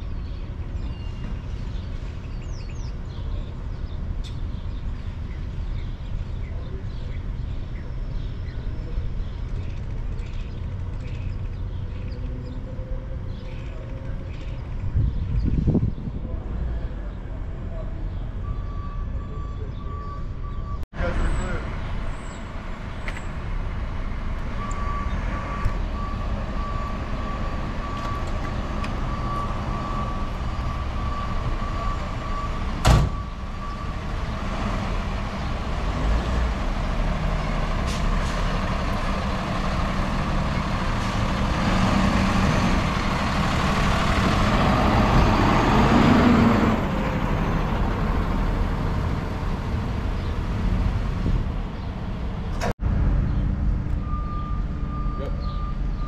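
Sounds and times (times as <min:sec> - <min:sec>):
road noise rush: 0:00.0 - 0:56.0
truck engines rumbling: 0:00.0 - 0:56.0
reversing alarm beeps: 0:18.3 - 0:20.8, 0:24.6 - 0:34.0, 0:54.0 - 0:56.0.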